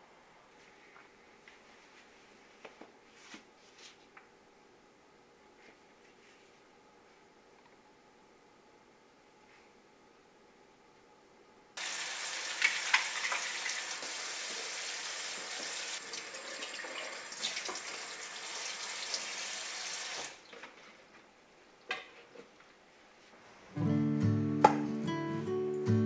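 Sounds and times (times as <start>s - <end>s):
kitchen tap running into sink: 11.8s - 20.4s
acoustic guitar music: 23.8s - 26.0s.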